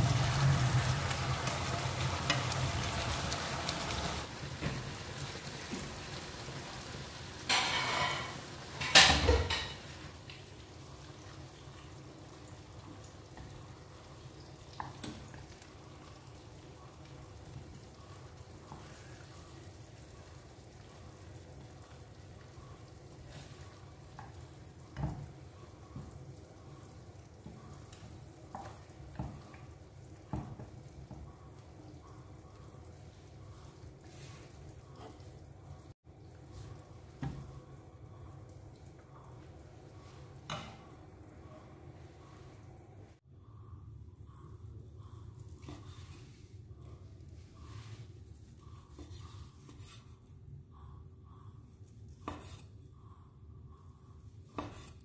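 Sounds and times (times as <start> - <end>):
glaze sizzling in a frying pan: 0.0 - 41.5
scrape in pan: 48.8 - 50.2, 52.2 - 52.8, 54.6 - 55.0.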